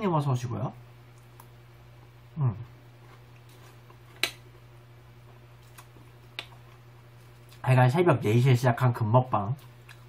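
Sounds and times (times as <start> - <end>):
person making vocal sound: 2.4 - 2.7.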